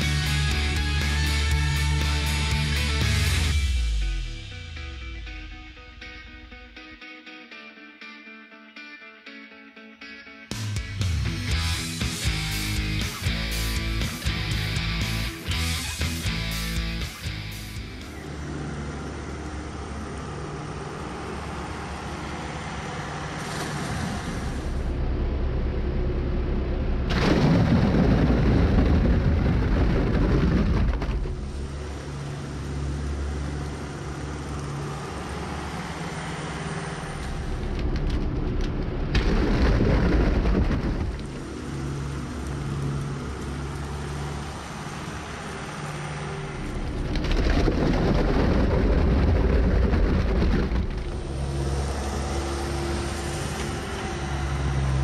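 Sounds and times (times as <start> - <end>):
farm machine engine running: 11.1 - 55.0.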